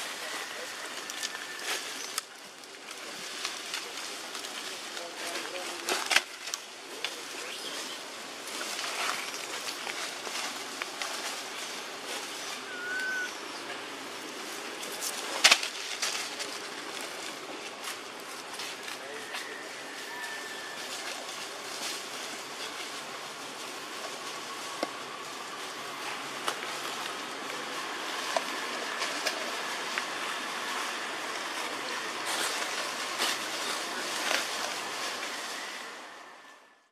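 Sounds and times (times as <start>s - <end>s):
dry leaves rustling and crackling: 0.0s - 36.9s
outdoor forest hiss: 0.0s - 36.9s
whistled note: 12.7s - 13.4s.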